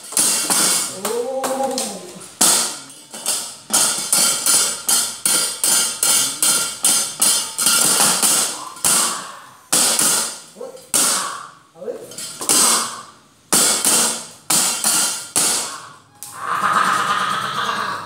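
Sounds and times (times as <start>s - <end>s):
rhythmic strikes on metal plates: 0.0s - 17.2s
voice rising and falling: 16.3s - 18.0s.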